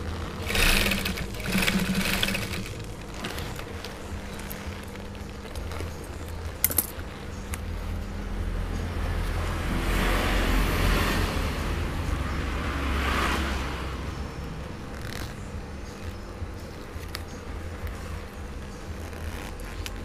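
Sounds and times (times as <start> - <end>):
leather jacket rustling: 0.0 - 8.0, 14.8 - 20.0.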